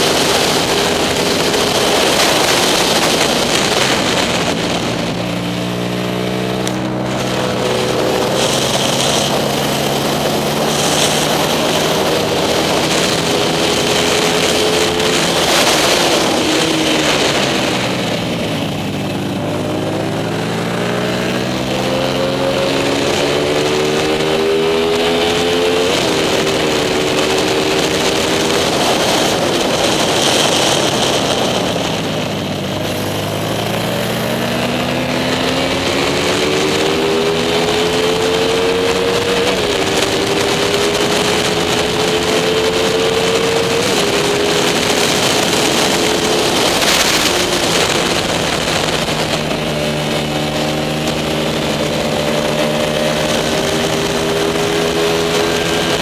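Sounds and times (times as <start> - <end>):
racing motorcycle engine: 0.0 - 56.0
wind noise on microphone: 0.0 - 56.0.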